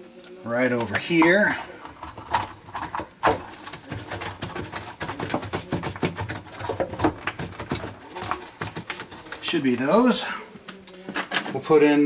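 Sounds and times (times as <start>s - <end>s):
plastic clicks knocks and scrapes: 0.8s - 9.4s.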